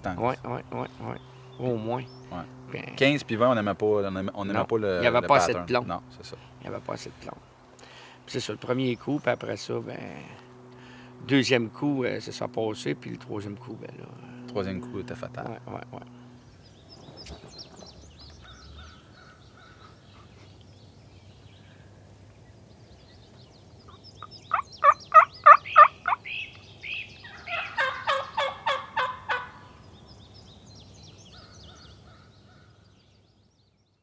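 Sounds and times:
faint songbird chirps: 0.1s - 3.2s, 15.8s - 28.6s, 29.6s - 34.0s
turkeys gobbling: 23.9s - 26.5s, 27.2s - 29.7s.

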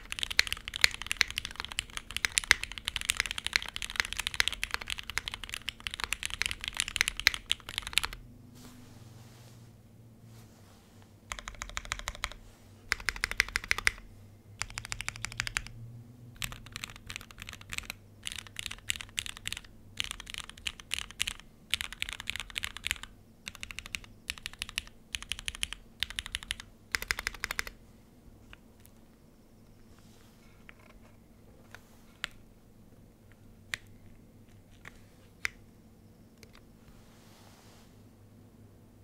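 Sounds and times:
mechanical keyboard typing: 0.0s - 8.2s, 11.3s - 14.0s, 14.6s - 15.8s, 16.4s - 27.8s.

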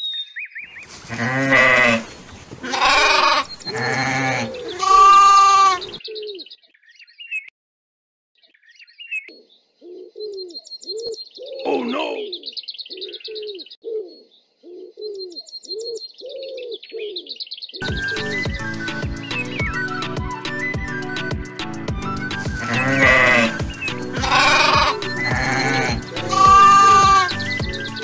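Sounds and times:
small birds chirping: 0.0s - 1.0s, 1.9s - 7.5s, 8.4s - 20.0s, 22.6s - 28.0s
pigeons cooing: 1.1s - 6.5s, 9.8s - 17.4s, 22.6s - 28.0s
goat bleating: 2.6s - 5.9s, 22.6s - 23.6s, 24.2s - 27.4s
music: 17.8s - 28.0s.

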